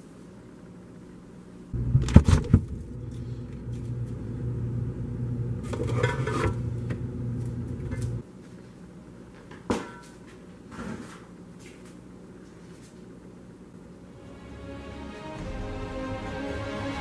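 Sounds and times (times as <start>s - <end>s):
refrigerator humming: 0.0s - 8.3s
items clattering on fridge shelves: 5.6s - 6.9s, 9.4s - 11.3s.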